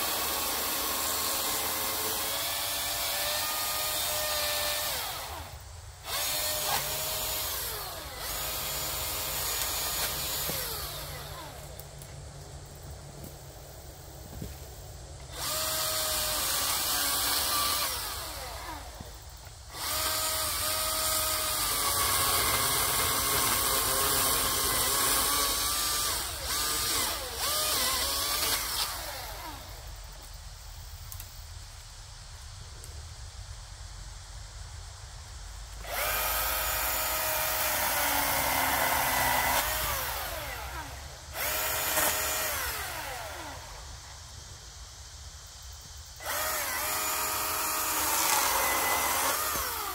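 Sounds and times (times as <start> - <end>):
electric chainsaw cutting log: 0.0 - 11.8, 15.2 - 30.0, 35.8 - 44.0, 46.2 - 49.9.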